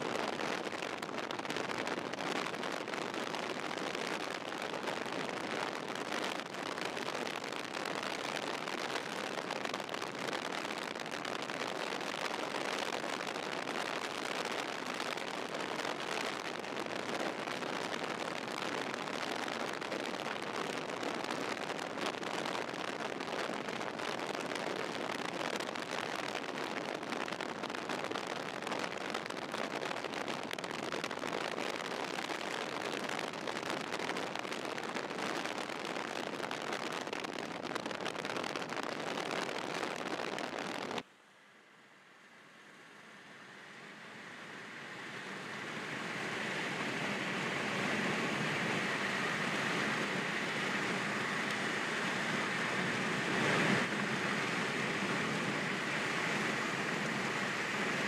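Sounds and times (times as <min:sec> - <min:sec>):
car road and wind noise: 0:00.0 - 0:41.0, 0:41.6 - 0:58.0.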